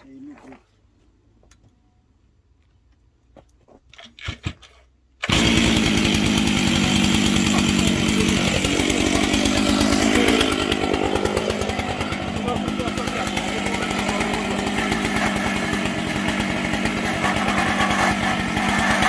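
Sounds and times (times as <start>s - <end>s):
chainsaw engine running: 5.2s - 19.0s.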